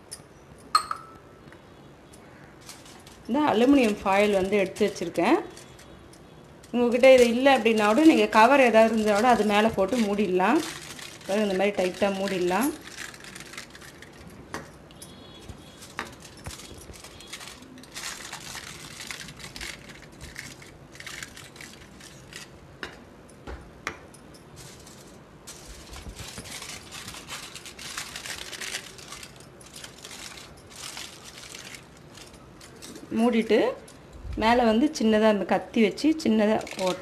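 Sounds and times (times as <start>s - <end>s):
steel cups clicking: 0.0s - 23.0s
aluminium foil crinkling: 2.2s - 22.6s, 24.5s - 33.6s, 36.3s - 37.0s.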